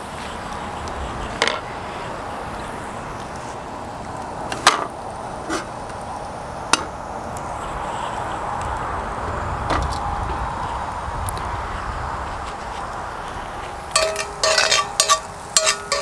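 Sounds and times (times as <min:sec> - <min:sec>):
food sizzling in butter: 0:00.0 - 0:08.4, 0:13.2 - 0:16.0
sharp pops: 0:02.6 - 0:08.8.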